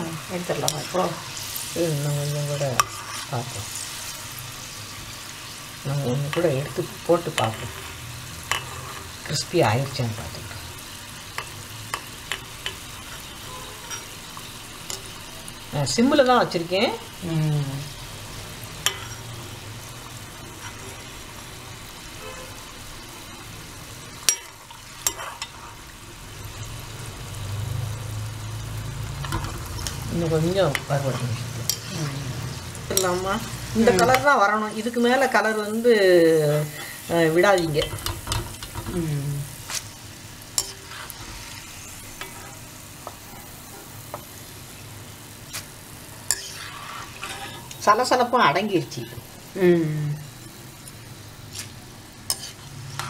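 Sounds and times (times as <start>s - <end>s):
food deep-frying in oil: 0.0s - 53.0s.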